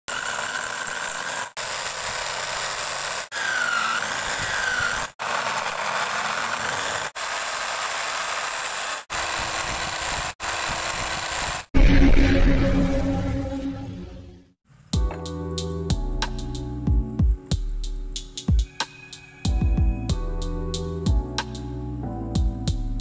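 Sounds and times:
electric drill motor whine: 0:00.1 - 0:11.7
hand tool cutting wood: 0:00.1 - 0:11.7.

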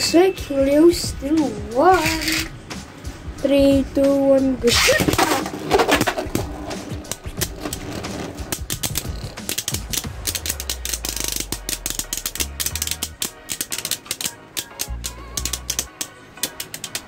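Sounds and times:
spinning tops clicking and rattling: 0:01.8 - 0:02.6, 0:04.7 - 0:17.0.

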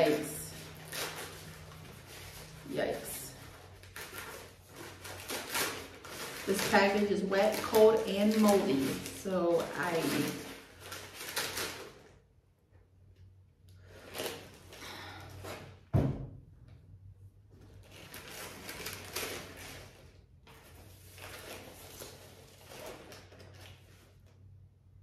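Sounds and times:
paper wrapping crinkling: 0:00.0 - 0:12.2, 0:17.6 - 0:24.6.

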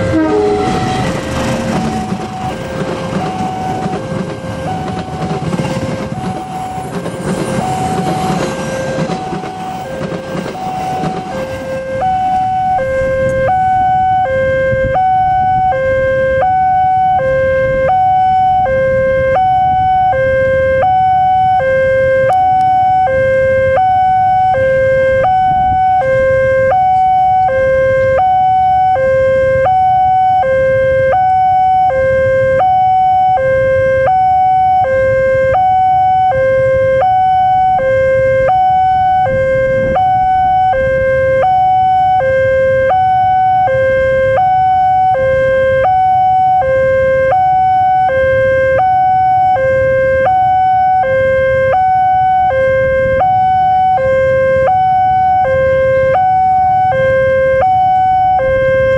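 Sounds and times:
two-note electronic warning alarm: 0:00.0 - 0:58.9.

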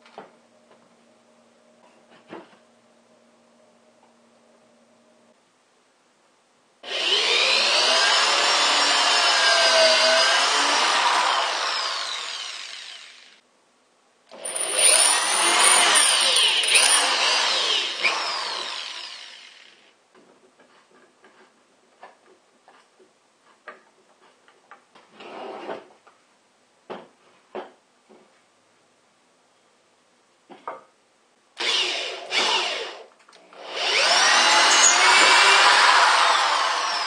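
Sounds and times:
cordless drill boring into wood: 0:06.8 - 0:13.4, 0:14.4 - 0:19.9, 0:31.6 - 0:33.0, 0:33.6 - 0:37.0.

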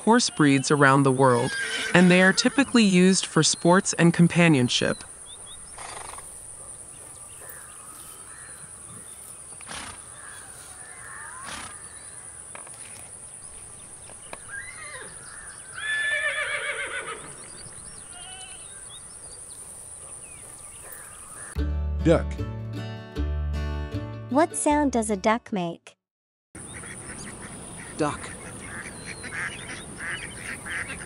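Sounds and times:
bird-like chirps: 0:04.8 - 0:16.0, 0:17.1 - 0:21.6, 0:26.6 - 0:31.0
wavering animal call: 0:14.4 - 0:17.3, 0:18.0 - 0:18.8.

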